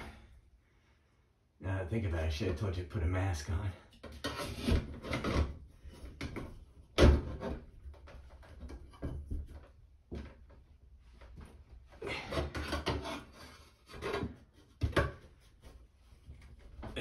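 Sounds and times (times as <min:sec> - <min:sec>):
pry bar scraping and knocking metal: 0:03.9 - 0:06.6, 0:12.2 - 0:15.3.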